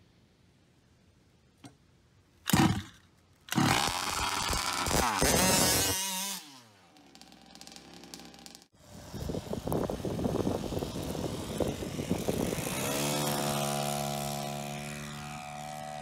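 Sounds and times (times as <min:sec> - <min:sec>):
pull-start burst: 0:02.5 - 0:08.7
two-stroke engine revving: 0:02.5 - 0:16.0.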